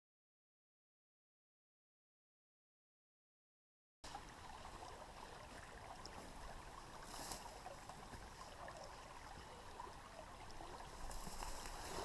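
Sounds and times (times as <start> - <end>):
creek water running: 4.0 - 12.0.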